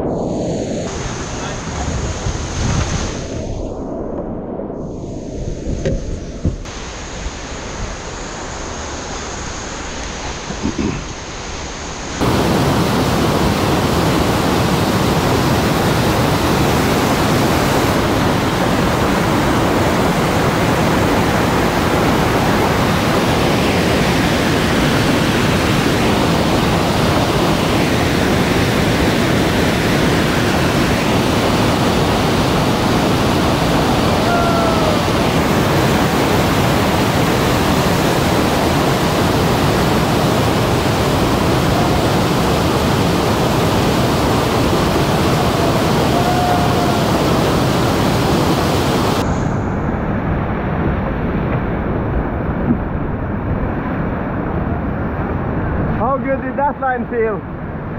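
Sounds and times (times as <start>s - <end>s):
rushing whitewater: 0.0s - 3.3s, 6.7s - 49.4s.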